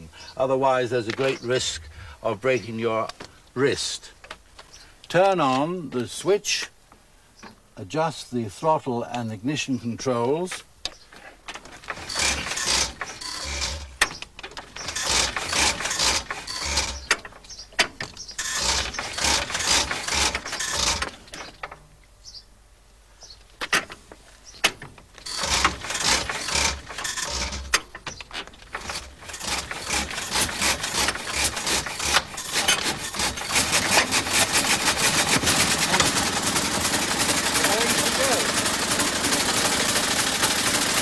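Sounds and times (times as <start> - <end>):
engine hand-cranking clatter: 11.5 - 21.8, 24.6 - 41.0
car engine running: 33.1 - 41.0.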